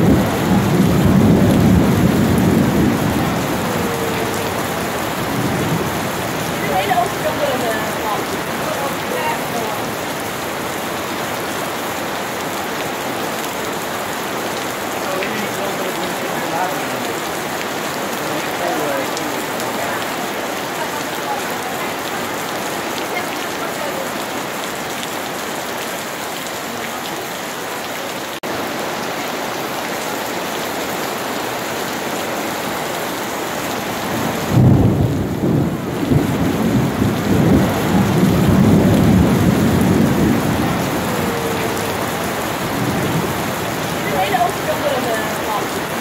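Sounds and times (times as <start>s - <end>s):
rolling thunder rumble: 0.0s - 10.0s, 34.0s - 46.0s
heavy rain: 0.0s - 46.0s.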